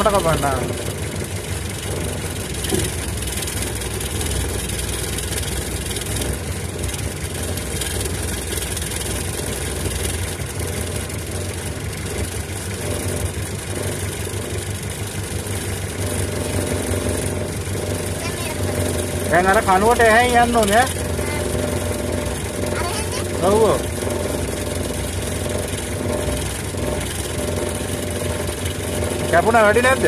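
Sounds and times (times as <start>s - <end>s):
car engine running: 0.0s - 30.0s.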